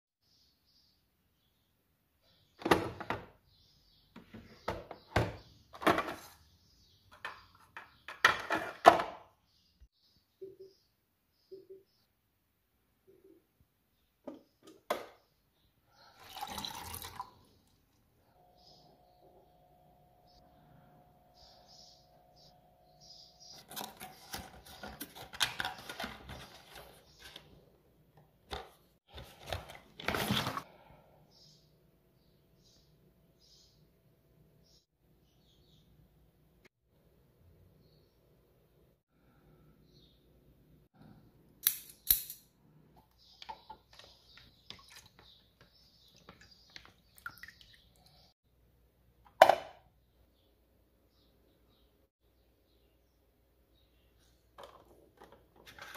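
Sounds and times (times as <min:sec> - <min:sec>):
hard plastic parts clacking: 0:54.6 - 0:55.9.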